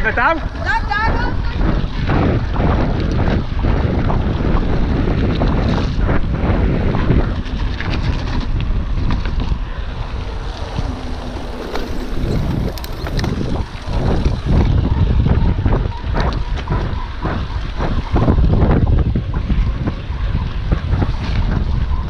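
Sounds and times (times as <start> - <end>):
wind buffeting microphone: 0.0 - 22.0
bike rattling clicks: 7.2 - 22.0.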